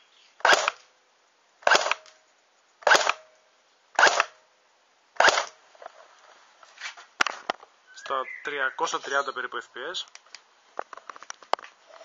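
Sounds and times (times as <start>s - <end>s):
airsoft gun single shots: 0.4s - 0.9s, 1.6s - 2.2s, 2.8s - 3.3s, 4.0s - 4.4s, 5.2s - 5.6s.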